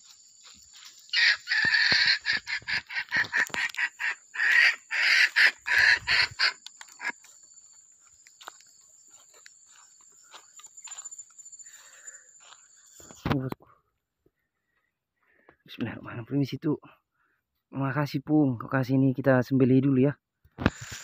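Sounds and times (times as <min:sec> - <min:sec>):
junglefowl calls through loudspeaker: 0:01.1 - 0:07.1.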